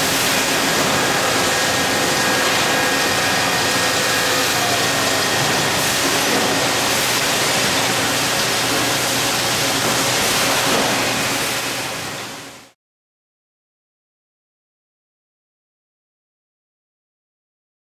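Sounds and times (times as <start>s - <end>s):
hissing machinery noise: 0.0s - 12.7s.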